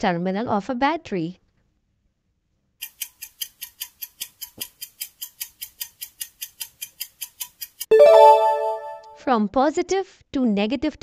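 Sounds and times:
clock ticking: 2.8s - 8.4s.

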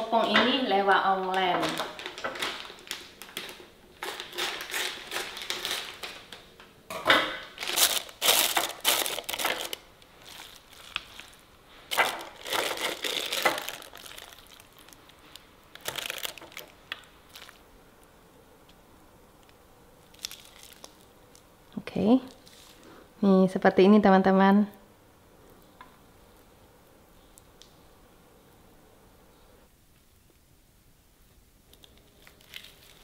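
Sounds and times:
packet crinkling and rustling: 1.2s - 6.6s, 7.5s - 17.7s, 19.4s - 21.5s, 22.3s - 22.9s, 31.7s - 33.0s.

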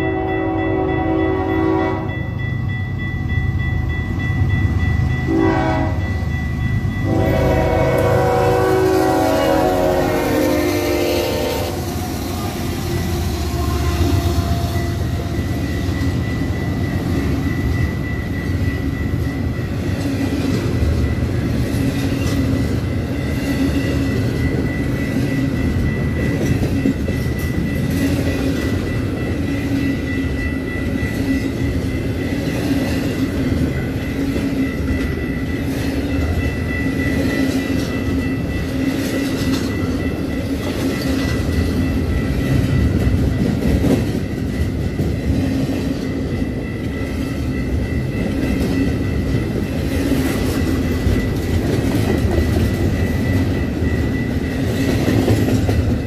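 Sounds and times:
locomotive horn blasts: 0.0s - 2.3s, 5.3s - 6.1s, 7.0s - 12.0s, 12.6s - 15.3s
train cars rumbling on rails: 0.0s - 56.0s.

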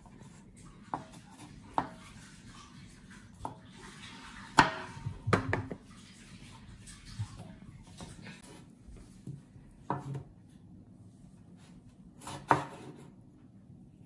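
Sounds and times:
knife knocking on cutting board: 4.6s - 5.8s.

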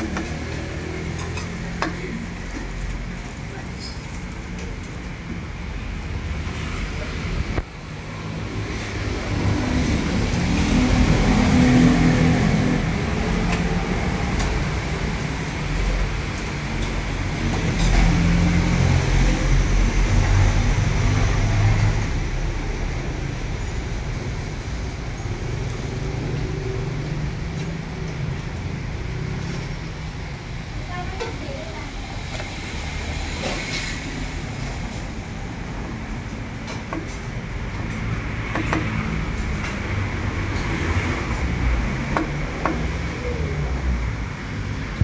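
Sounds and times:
road traffic rumbling: 0.0s - 45.0s.

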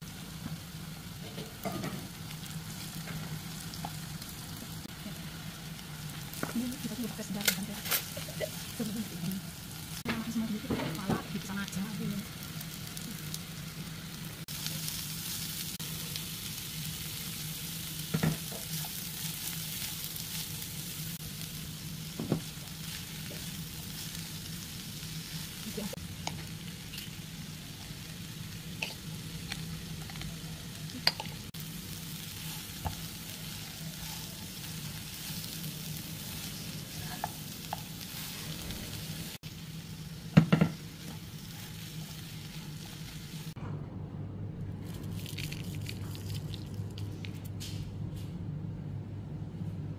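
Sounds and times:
food sizzling in a pan: 0.0s - 43.6s
spatula knocking on pan: 40.4s - 40.8s.

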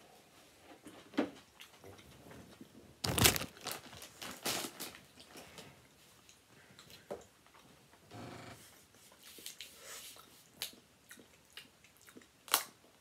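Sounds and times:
chips crinkling and crunching: 3.0s - 5.4s
person chewing: 10.6s - 12.7s.

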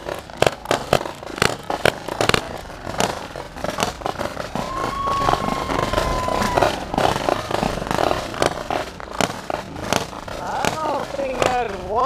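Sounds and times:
paintball markers firing: 0.0s - 12.0s.

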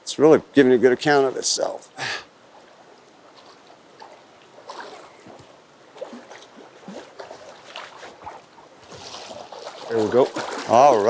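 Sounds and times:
moving water hiss: 1.1s - 11.0s
fish splashing in water: 2.6s - 11.0s.

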